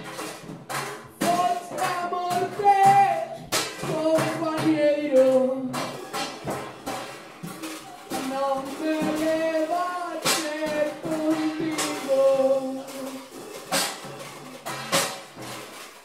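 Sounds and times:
sparse drum kit: 0:00.0 - 0:16.0
man singing slow melody: 0:08.2 - 0:13.3.

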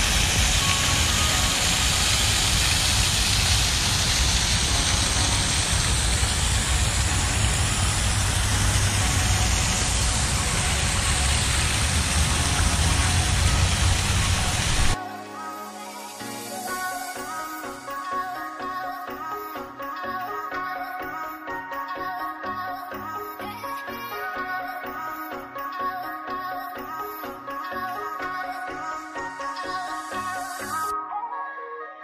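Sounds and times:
low rumble: 0:00.0 - 0:15.0
outdoor rushing noise: 0:00.0 - 0:15.0.

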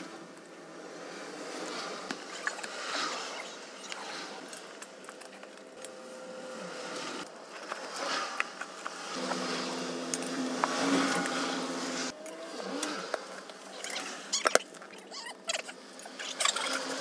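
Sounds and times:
low hum: 0:05.6 - 0:07.4.

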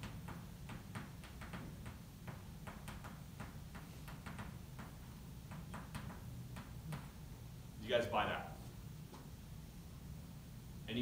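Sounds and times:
chalk tapping on board: 0:00.0 - 0:07.2
low room hum: 0:00.0 - 0:11.0.

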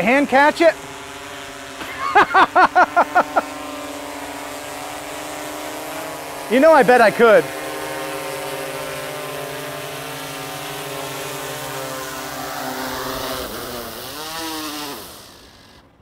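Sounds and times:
drone propellers humming: 0:00.0 - 0:16.0.

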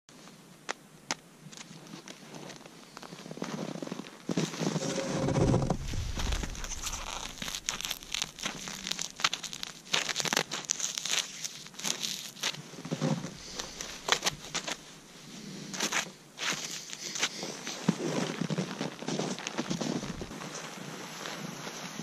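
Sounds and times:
frozen gloves crackling: 0:05.6 - 0:17.3.

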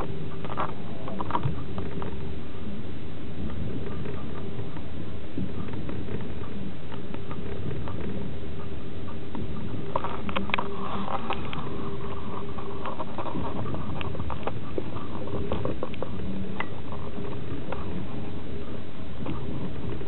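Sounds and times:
faint hum: 0:00.0 - 0:20.0
light clicks and rattles: 0:09.2 - 0:18.4.

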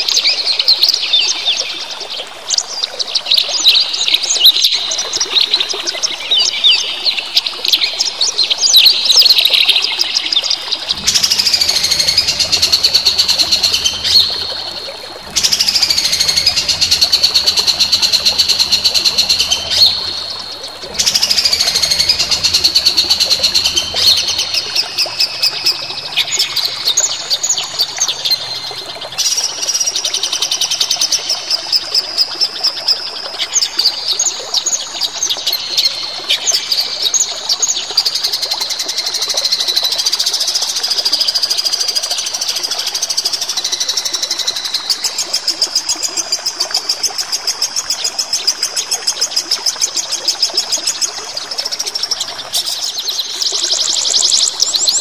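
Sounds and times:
songbird singing: 0:00.0 - 0:37.1, 0:50.5 - 0:55.0.

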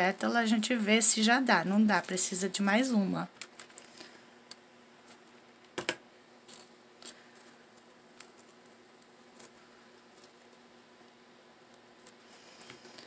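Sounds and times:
ribbon rustling: 0:06.4 - 0:10.7.

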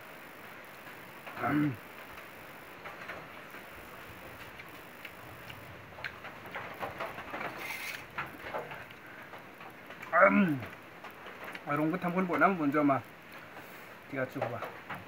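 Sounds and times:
person chewing: 0:04.4 - 0:06.2.

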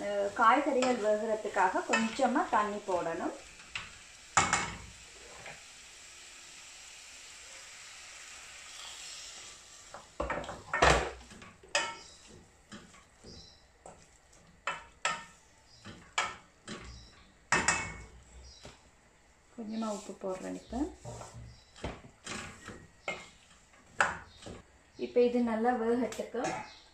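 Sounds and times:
vegetables sizzling in a pan: 0:00.0 - 0:26.9
spatula knocking and scraping pan: 0:00.6 - 0:04.9, 0:09.9 - 0:18.8, 0:19.8 - 0:24.7.

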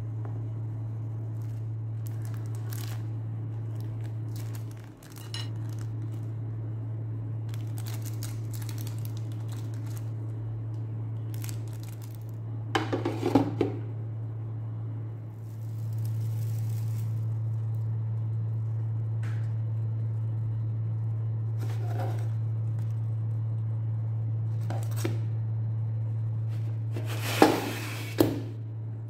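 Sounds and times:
steady low hum: 0:00.0 - 0:29.0
plastic bag rustling: 0:01.4 - 0:06.3, 0:07.5 - 0:10.3, 0:11.3 - 0:12.4, 0:15.4 - 0:17.8.

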